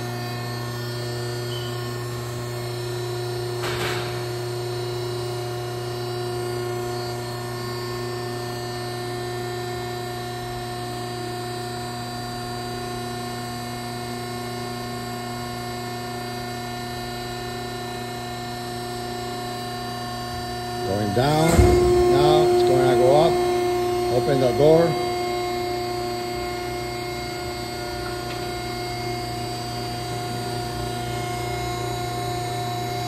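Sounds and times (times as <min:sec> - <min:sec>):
hydraulic pump hum: 0:17.5 - 0:33.0.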